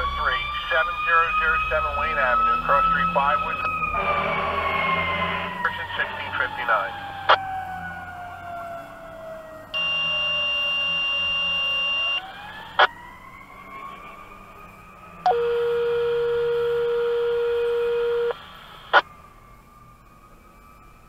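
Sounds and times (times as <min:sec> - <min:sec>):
radio alert tones: 0:09.8 - 0:12.3, 0:15.3 - 0:19.0
siren winding: 0:09.8 - 0:12.3, 0:15.3 - 0:19.0.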